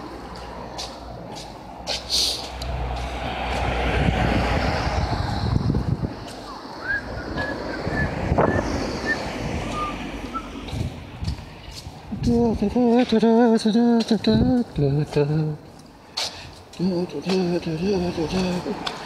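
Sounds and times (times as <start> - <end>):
road traffic passing: 0.0 - 19.0
wind buffeting microphone: 2.5 - 13.4, 14.0 - 15.4.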